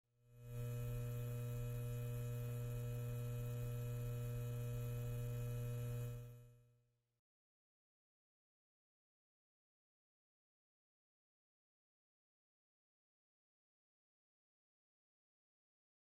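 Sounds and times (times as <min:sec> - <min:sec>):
low electrical hum with hiss: 0:00.4 - 0:06.4.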